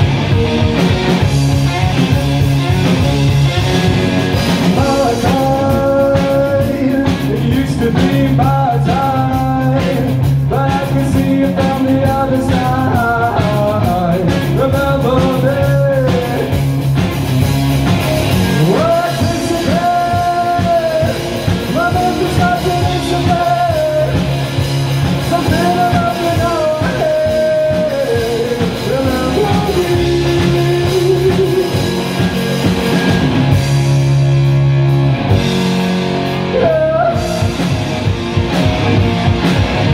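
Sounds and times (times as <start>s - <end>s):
drum kit: 0.0s - 39.9s
electric guitar: 0.0s - 39.9s
man singing: 4.6s - 16.6s, 18.5s - 24.4s, 25.2s - 32.3s, 36.4s - 37.8s.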